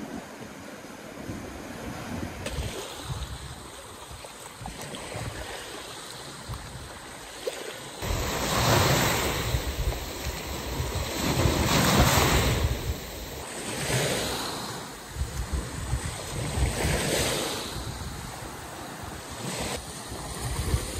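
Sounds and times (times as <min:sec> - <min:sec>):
small waves washing on shore: 0:00.0 - 0:20.9
foaming surf running up sand: 0:07.9 - 0:20.9.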